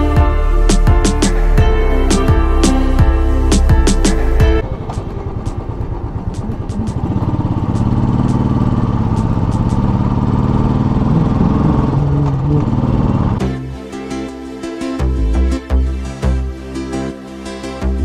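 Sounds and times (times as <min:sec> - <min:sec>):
motorcycle engine running: 0:00.2 - 0:13.4.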